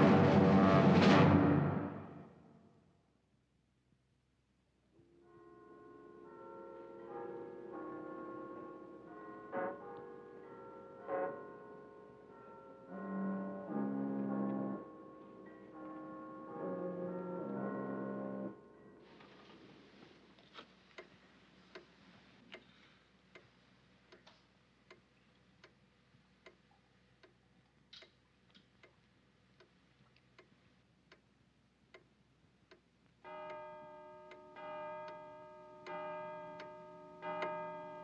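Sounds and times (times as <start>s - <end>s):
clock ticking: 21.0s - 21.9s, 24.1s - 25.8s, 31.1s - 31.3s, 32.7s - 38.0s.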